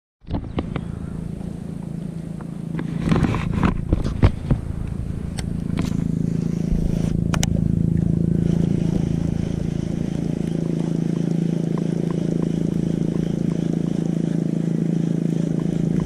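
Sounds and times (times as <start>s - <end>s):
small boat motor humming: 0.2s - 16.0s.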